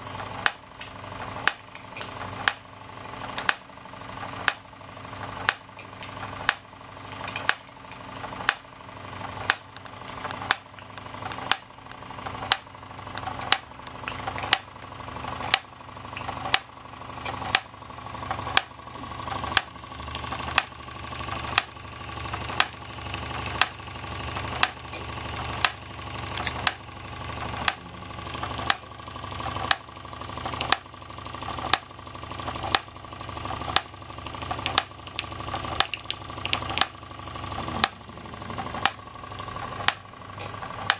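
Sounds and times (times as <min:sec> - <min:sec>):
sharp click: 0:03.4 - 0:03.6, 0:04.4 - 0:04.6, 0:05.4 - 0:06.6, 0:07.2 - 0:08.7, 0:09.5 - 0:14.7, 0:25.6 - 0:26.8, 0:29.6 - 0:29.8, 0:32.7 - 0:32.9, 0:34.6 - 0:37.0
toy steam engine running: 0:04.2 - 0:40.9.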